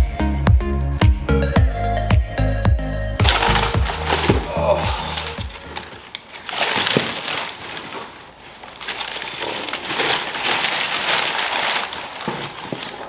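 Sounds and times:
packing paper rustling: 0:03.2 - 0:13.0.

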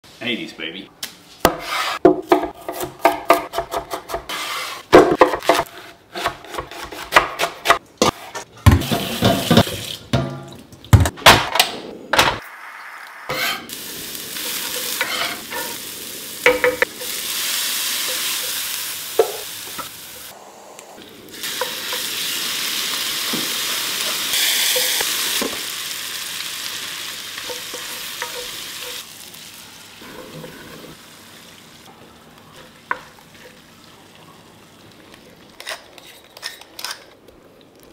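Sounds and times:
chicken sizzling as it fries: 0:12.4 - 0:20.4, 0:21.0 - 0:35.9
vegetables sizzling in oil: 0:12.5 - 0:20.4, 0:21.2 - 0:35.8.

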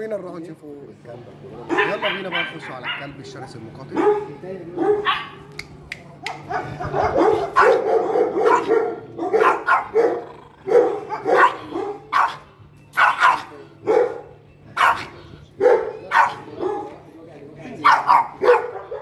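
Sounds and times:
dog barking: 0:01.7 - 0:03.2, 0:03.9 - 0:05.4, 0:06.4 - 0:17.0, 0:17.8 - 0:19.0.

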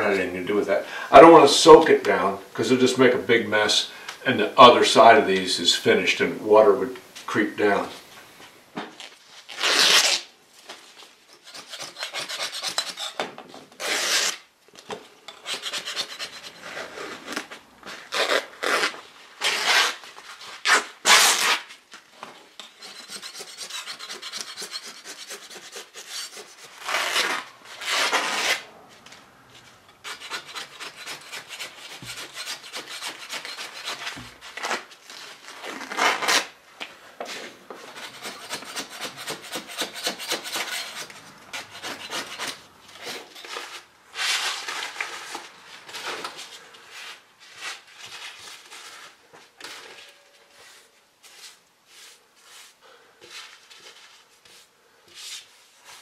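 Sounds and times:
hand scraper scraping wood: 0:11.3 - 0:14.4, 0:15.3 - 0:18.9, 0:22.6 - 0:28.6, 0:30.0 - 0:34.9, 0:37.3 - 0:48.2.

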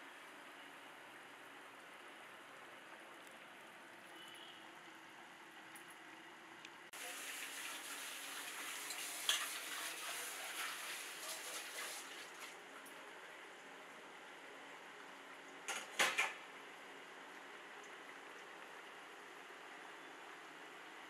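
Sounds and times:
rice simmering bubbling hiss: 0:06.9 - 0:15.5.

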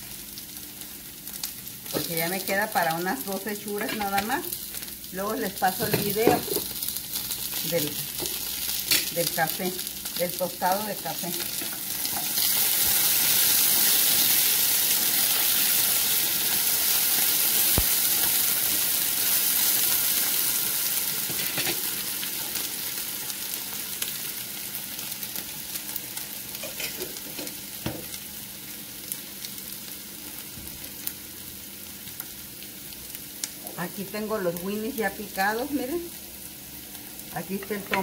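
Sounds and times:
potatoes sizzling in a frying pan: 0:00.0 - 0:38.0
utensil stirring in a pan: 0:26.6 - 0:27.6.

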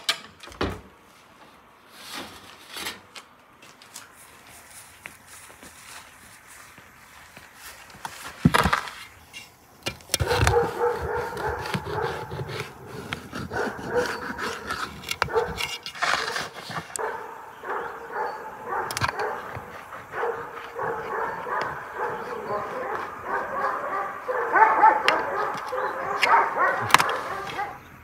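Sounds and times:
dog whining: 0:10.3 - 0:15.6, 0:17.0 - 0:27.9.

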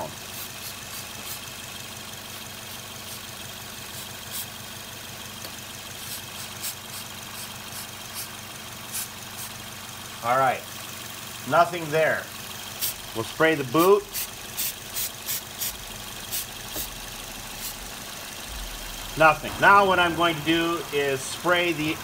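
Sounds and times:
petrol engine idling: 0:00.0 - 0:22.0
aerosol spray hissing: 0:00.2 - 0:01.4, 0:03.0 - 0:04.5, 0:06.0 - 0:08.3, 0:08.9 - 0:09.6, 0:12.7 - 0:13.0, 0:14.1 - 0:17.0, 0:17.6 - 0:17.8.

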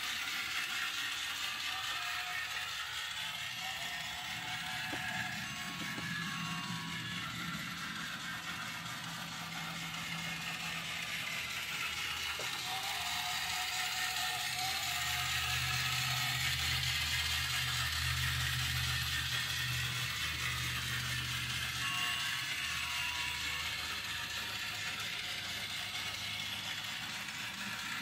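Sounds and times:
small motors whirring and clattering: 0:00.0 - 0:28.0.

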